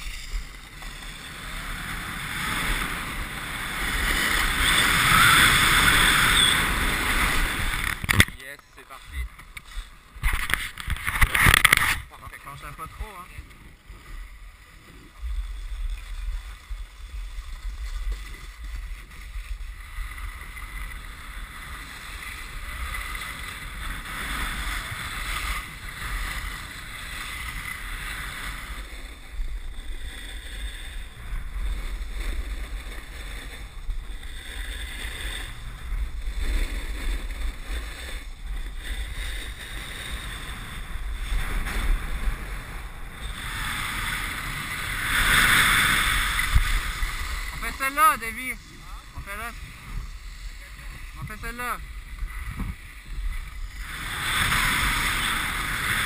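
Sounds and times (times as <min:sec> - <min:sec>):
skis scraping icy snow: 0:00.0 - 0:56.0
wind buffeting microphone: 0:12.9 - 0:56.0.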